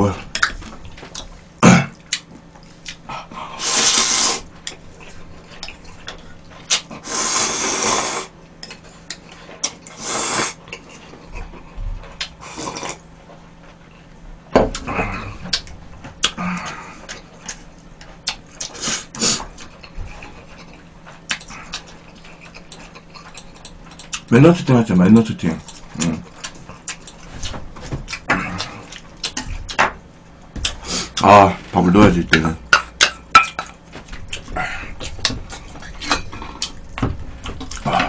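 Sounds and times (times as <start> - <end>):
chewing: 2.0 - 7.0, 8.6 - 14.1, 14.7 - 24.3, 25.6 - 29.8, 33.0 - 38.0
noodles slurped: 3.6 - 4.5, 6.7 - 8.3, 9.9 - 10.6.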